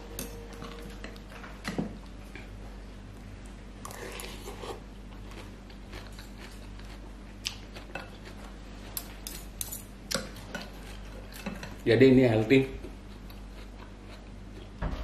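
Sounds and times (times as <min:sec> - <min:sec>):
spoon and fork clinking on bowl: 0:00.0 - 0:01.2
low electrical hum: 0:00.0 - 0:15.0.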